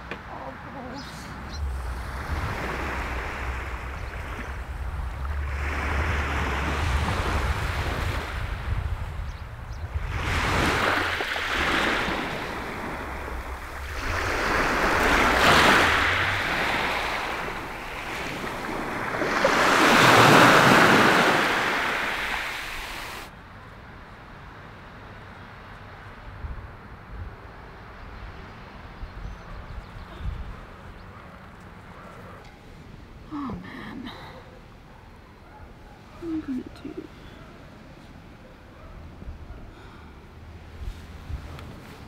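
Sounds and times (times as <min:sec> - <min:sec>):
waves washing over pebbles: 0:01.6 - 0:09.1, 0:09.9 - 0:23.3.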